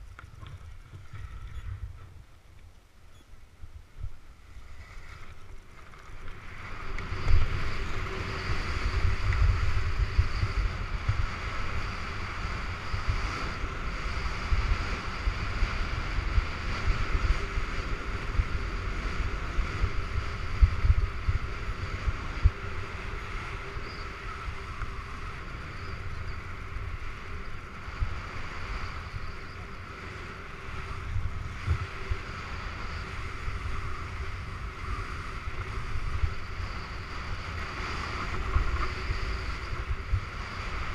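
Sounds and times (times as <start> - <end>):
wind buffeting microphone: 0.0 - 2.6, 3.6 - 40.9
skis sliding on snow: 4.4 - 40.9.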